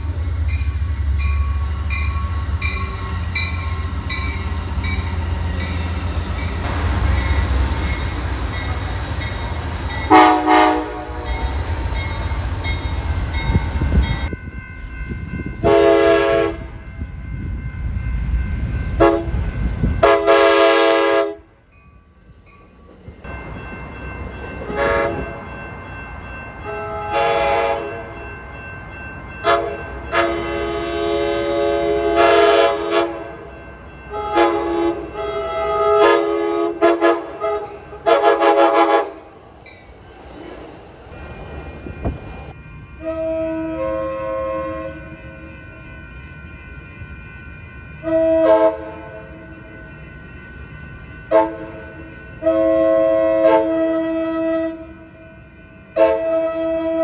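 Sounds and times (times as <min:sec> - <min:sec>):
passing train rumbling: 0:00.0 - 0:57.0
train air horn blasts: 0:10.1 - 0:11.6, 0:15.6 - 0:16.8, 0:19.0 - 0:19.4, 0:20.0 - 0:21.5, 0:24.7 - 0:25.4, 0:26.7 - 0:28.1, 0:29.4 - 0:33.4, 0:34.1 - 0:39.3, 0:43.0 - 0:45.4, 0:48.0 - 0:49.4, 0:52.4 - 0:55.0, 0:56.0 - 0:57.0.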